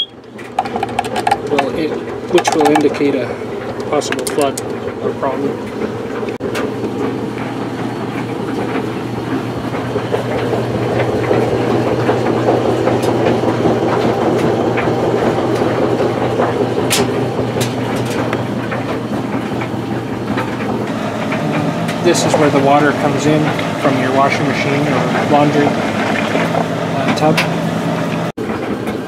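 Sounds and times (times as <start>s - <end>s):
mechanical rumble: 0.0s - 29.0s
low hum: 20.9s - 28.3s.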